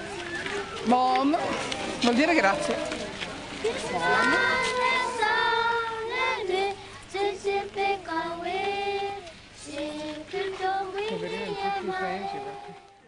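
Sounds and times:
children singing: 3.7 - 13.0.

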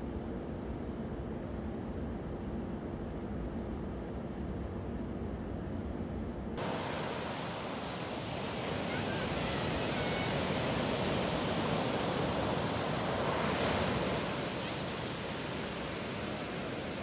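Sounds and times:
surf breaking on beach: 6.6 - 17.0.

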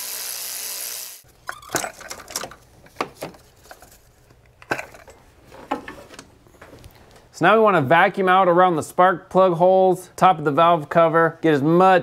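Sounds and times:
electric ratchet running: 0.0 - 1.2.

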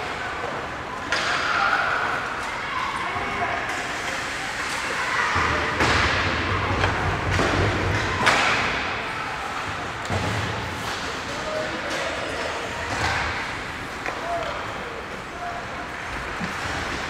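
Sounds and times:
skates scraping ice: 9.4 - 17.0.

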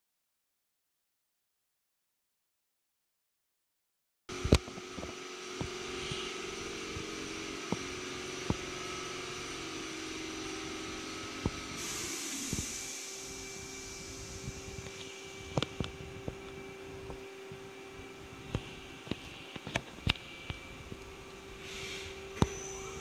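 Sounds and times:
lathe idling hum: 4.3 - 23.0
high hiss: 5.7 - 16.9, 21.4 - 23.0.

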